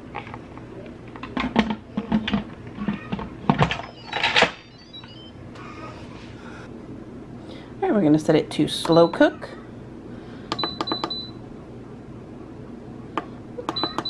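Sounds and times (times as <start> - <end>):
electronic tones: 3.9 - 5.4.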